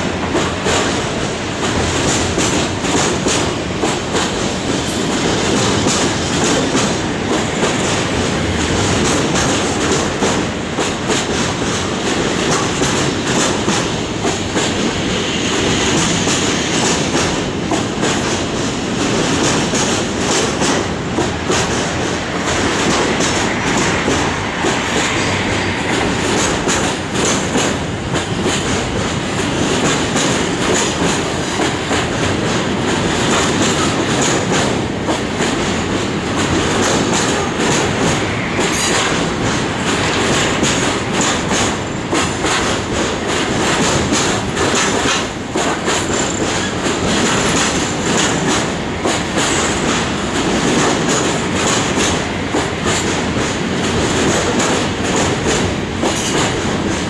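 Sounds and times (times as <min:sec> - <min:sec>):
train rumble: 0:00.0 - 0:57.0
train wheels clattering over rail joints: 0:00.2 - 0:57.0.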